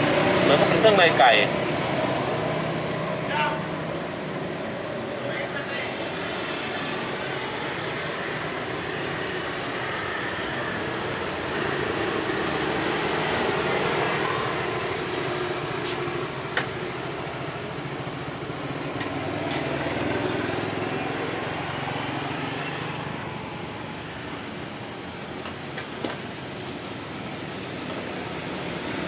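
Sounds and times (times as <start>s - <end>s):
scooter engines running: 0.0s - 29.0s
scooter idling: 5.9s - 29.0s.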